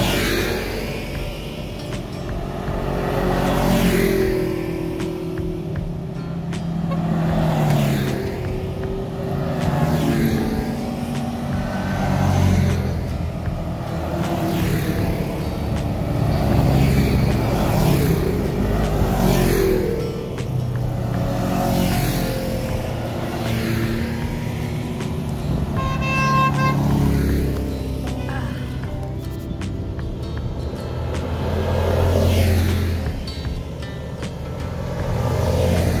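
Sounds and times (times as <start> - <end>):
utility vehicle engine revving: 0.0 - 36.0.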